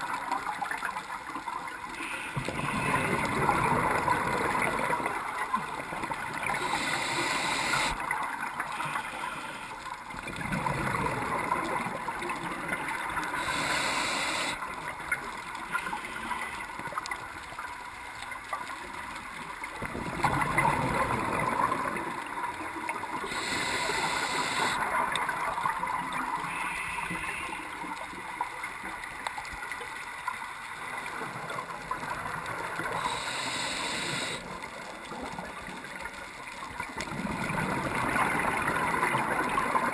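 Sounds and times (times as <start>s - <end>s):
divers breathing through regulators: 6.4s - 8.0s, 13.3s - 14.6s, 23.2s - 24.8s, 32.9s - 34.5s.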